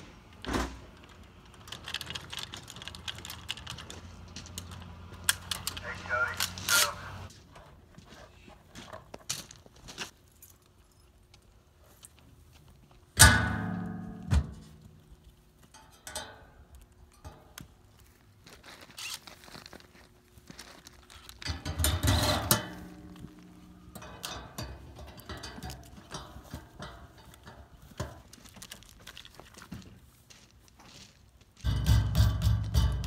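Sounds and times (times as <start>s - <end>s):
tools clicking and rattling: 1.0s - 7.0s, 13.9s - 17.8s, 21.1s - 29.2s
metal lid clanging shut: 21.5s - 23.2s.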